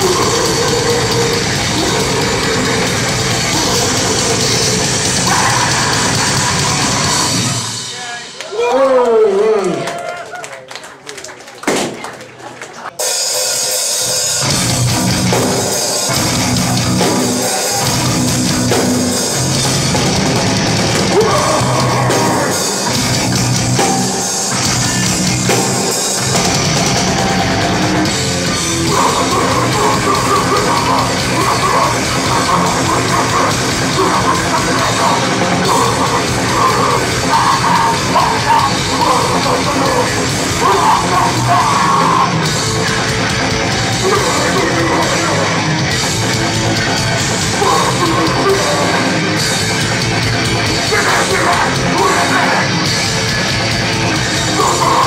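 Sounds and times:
live punk band playing: 0.0s - 10.0s, 13.0s - 55.0s
higher guitar riff: 18.0s - 55.0s.

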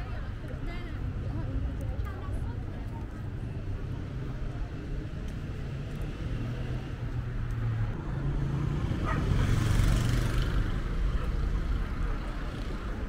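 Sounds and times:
low traffic hum: 0.0s - 13.0s
vehicle passing close by: 6.0s - 13.0s.

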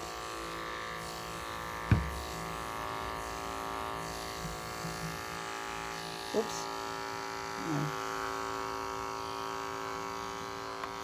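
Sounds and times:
electric clippers humming: 0.0s - 11.0s
sharp knock: 1.9s - 2.2s.

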